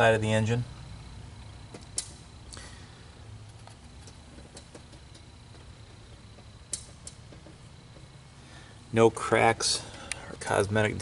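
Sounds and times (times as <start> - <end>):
faint low hum: 0.0 - 11.0
handling clicks and taps: 3.5 - 5.7, 6.3 - 8.2.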